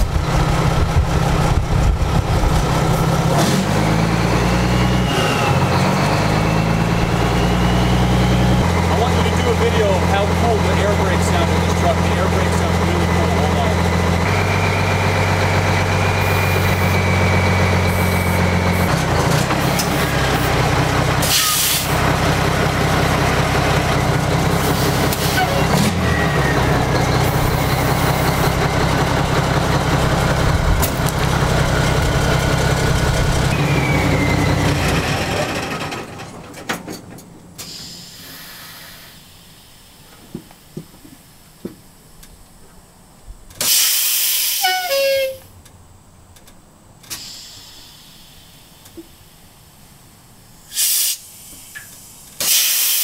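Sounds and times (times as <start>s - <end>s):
diesel truck engine idling: 0.0s - 43.6s
air hiss: 37.6s - 41.4s, 43.6s - 44.8s, 47.0s - 49.9s, 50.6s - 53.0s.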